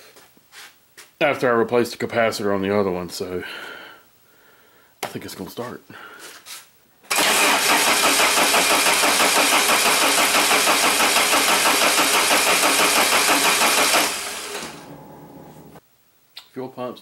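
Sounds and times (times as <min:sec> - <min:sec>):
starter motor cranking engine: 0:07.1 - 0:15.7.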